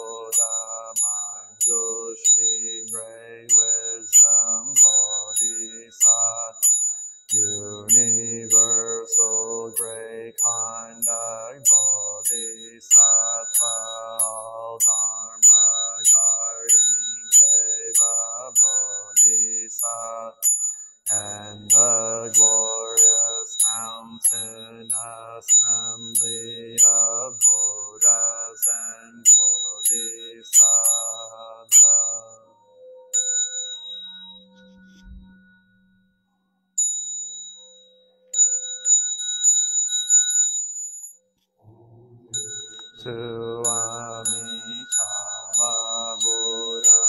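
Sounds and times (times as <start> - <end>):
liturgical chanting: 0.0 - 6.7, 7.4 - 20.4, 21.1 - 32.5, 41.6 - 47.0
faint high ringing tones: 0.0 - 47.0.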